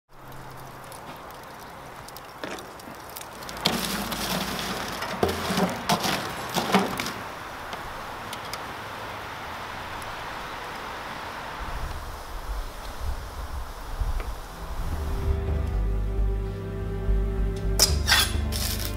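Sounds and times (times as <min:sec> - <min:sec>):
steady background noise: 0:00.1 - 0:18.9
charcoal stirred with metal tool: 0:02.5 - 0:07.2.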